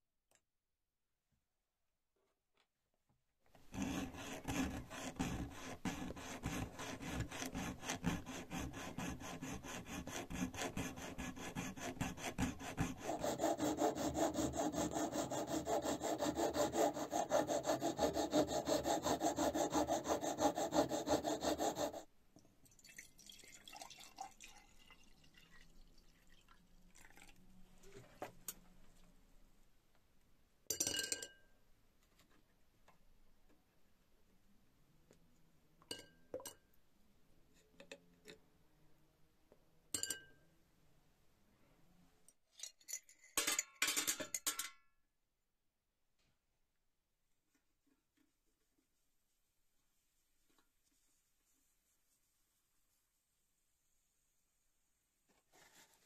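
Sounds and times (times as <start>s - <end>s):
file rasping on brass: 3.6s - 22.1s.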